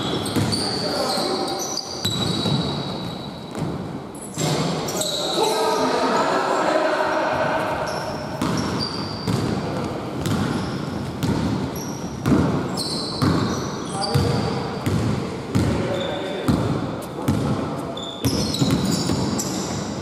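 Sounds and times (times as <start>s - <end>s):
sneaker squeaks: 0.0s - 6.3s, 7.7s - 16.6s, 17.3s - 20.0s
basketball dribbling on hardwood: 9.3s - 10.5s, 11.1s - 11.6s, 12.2s - 12.6s.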